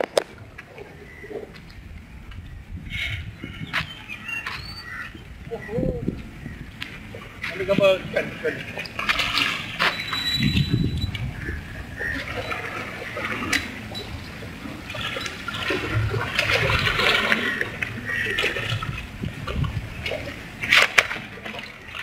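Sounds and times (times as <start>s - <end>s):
water splashing from thrashing fish: 8.4s - 10.4s, 11.3s - 22.0s.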